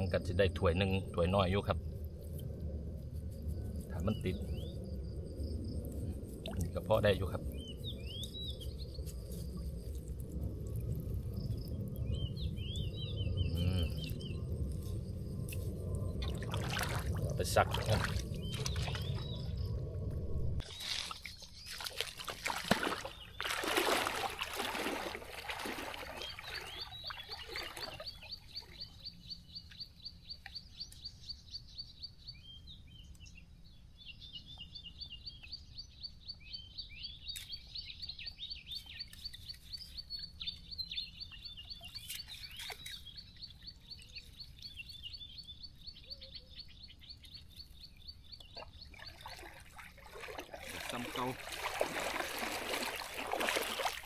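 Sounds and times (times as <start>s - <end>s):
water splashing and sloshing: 5.2s - 12.9s, 14.0s - 29.0s, 41.3s - 45.0s, 47.3s - 54.0s.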